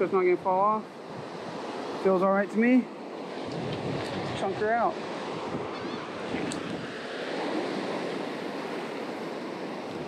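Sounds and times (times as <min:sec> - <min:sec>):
surf washing onto beach: 0:00.0 - 0:10.0
wind buffeting microphone: 0:03.1 - 0:10.0.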